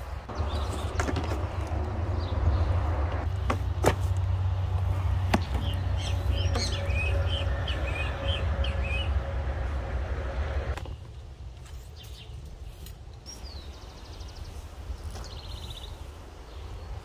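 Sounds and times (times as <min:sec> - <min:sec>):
steady low rumble: 0:00.0 - 0:11.6
bird chirping: 0:05.3 - 0:09.4.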